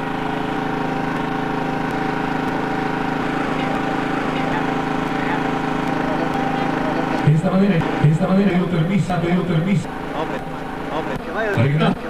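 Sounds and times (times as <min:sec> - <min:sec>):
steady tonal drone: 0:00.0 - 0:12.0.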